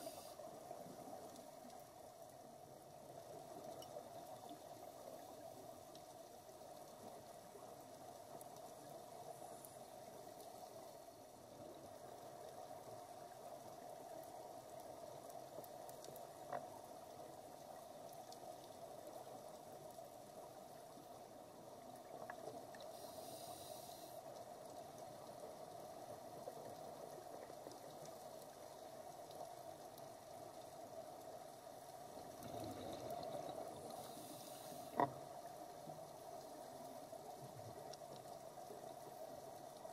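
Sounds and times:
underwater hiss and hum: 0:00.0 - 0:39.9
scuba exhaust bubbles: 0:32.2 - 0:35.2.

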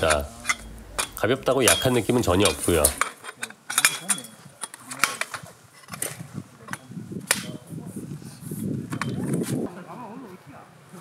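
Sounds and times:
tent poles clicking together: 0:02.4 - 0:07.6.

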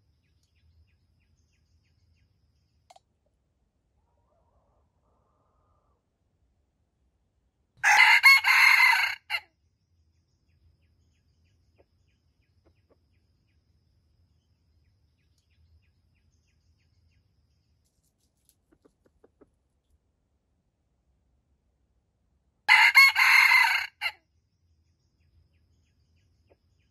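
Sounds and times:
rooster crowing: 0:04.1 - 0:06.0, 0:07.8 - 0:09.4, 0:22.7 - 0:24.2.

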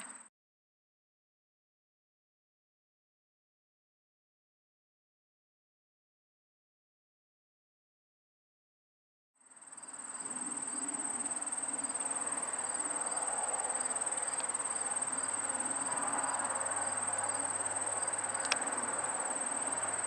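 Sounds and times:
faint pulsing insect call: 0:00.0 - 0:00.3, 0:09.4 - 0:20.0
high-pitched insect trill: 0:09.4 - 0:20.0
sharp click: 0:18.4 - 0:18.7.

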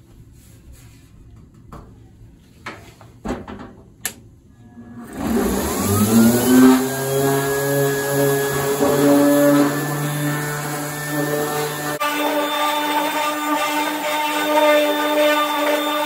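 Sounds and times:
orbital sander whining: 0:05.1 - 0:16.0.

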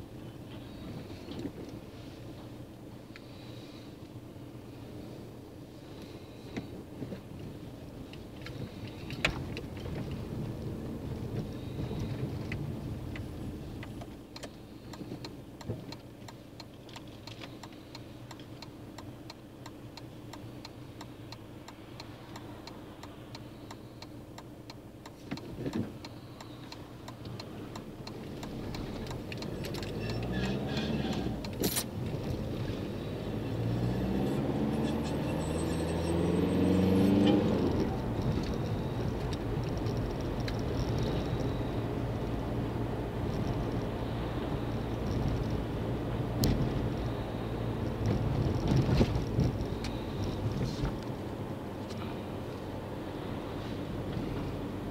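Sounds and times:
car engine and road noise: 0:00.0 - 0:54.9
fine regular ticking: 0:11.2 - 0:30.3
engine revving: 0:27.8 - 0:39.5.

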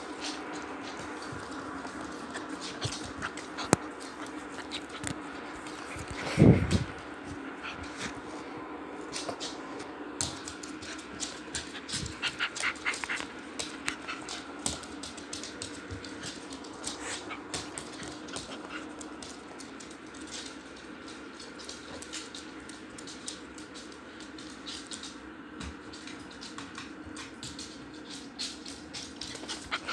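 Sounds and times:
dog panting: 0:00.2 - 0:06.6, 0:10.7 - 0:14.9, 0:16.0 - 0:19.2, 0:29.0 - 0:29.9.

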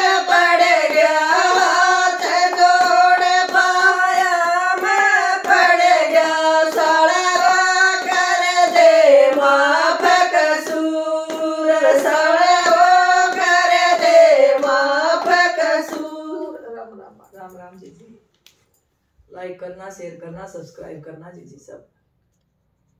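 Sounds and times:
hand claps: 0:00.0 - 0:16.5
women singing folk song: 0:00.0 - 0:16.7.

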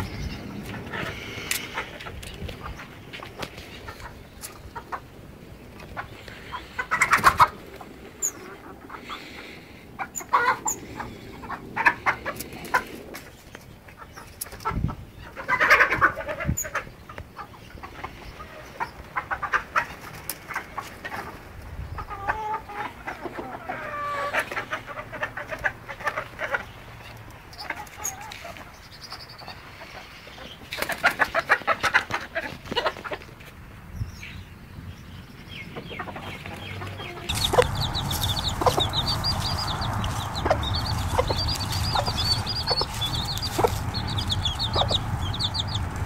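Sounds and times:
chickens clucking: 0:00.0 - 0:33.6, 0:35.5 - 0:46.0.

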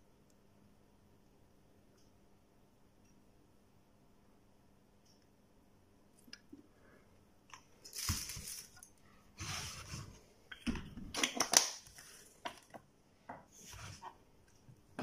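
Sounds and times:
rustling and scraping: 0:07.8 - 0:10.3, 0:13.5 - 0:14.3.

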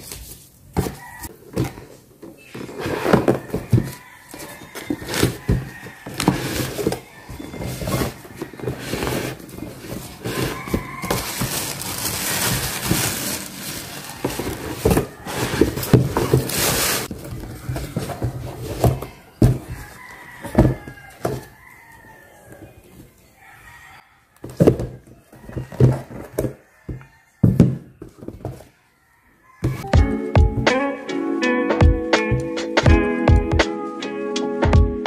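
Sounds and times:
cardboard box being handled: 0:00.0 - 0:21.9
tissue paper rustling: 0:04.8 - 0:18.9
knocks and thumps: 0:14.2 - 0:21.5, 0:24.4 - 0:28.7.

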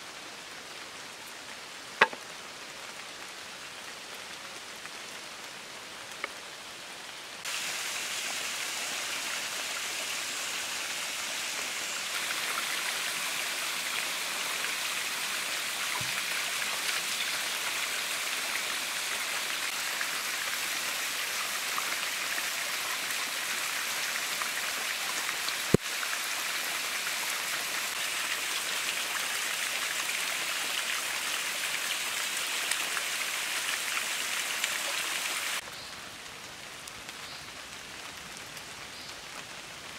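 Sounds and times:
rain-like patter: 0:00.0 - 0:39.9
waterfall splashing: 0:07.4 - 0:35.6.

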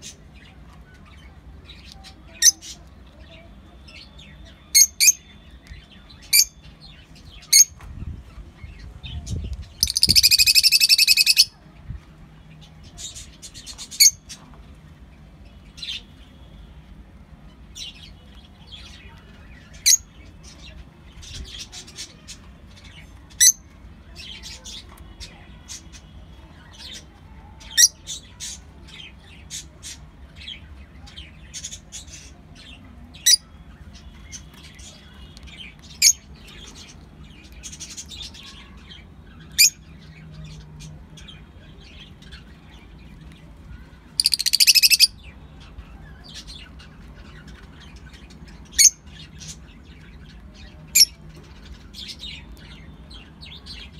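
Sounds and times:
lovebirds chirping: 0:08.3 - 0:11.6, 0:30.4 - 0:53.9.

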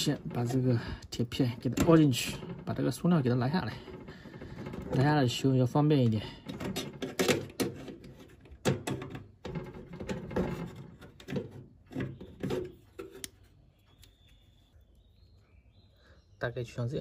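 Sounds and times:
metal scraping on plastic: 0:00.0 - 0:13.6.

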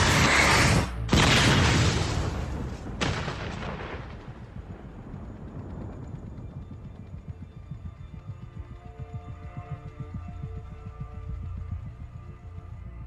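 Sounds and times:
loud explosion blasts: 0:01.1 - 0:04.5.

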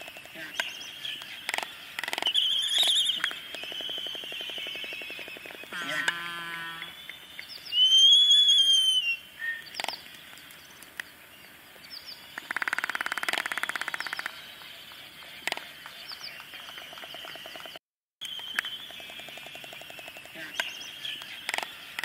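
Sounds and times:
albatross whistling call: 0:01.5 - 0:07.0, 0:07.7 - 0:09.7
albatross bill-clapping clatter: 0:12.4 - 0:17.8.

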